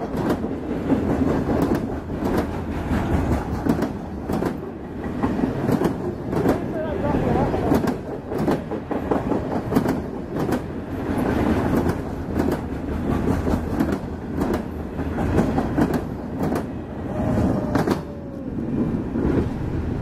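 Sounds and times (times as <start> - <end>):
wheels clicking over rail joints: 0.0 - 16.8
train wheels rumbling on rails: 0.0 - 20.0.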